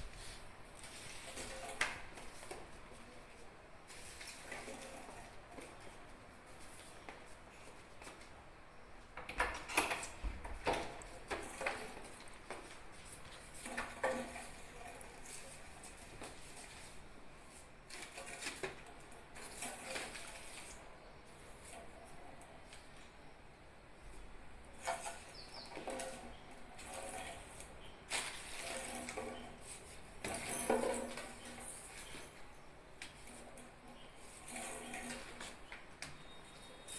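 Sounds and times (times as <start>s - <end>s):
broom sweeping tiled floor: 0.0s - 8.4s, 9.8s - 23.1s, 24.7s - 36.9s
plastic packet scraping along: 25.9s - 30.0s.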